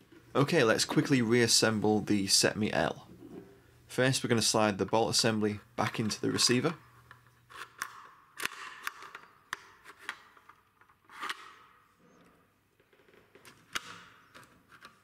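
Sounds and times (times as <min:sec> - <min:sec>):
rifle bolt sliding scrapes: 0:07.5 - 0:07.9, 0:11.1 - 0:11.6.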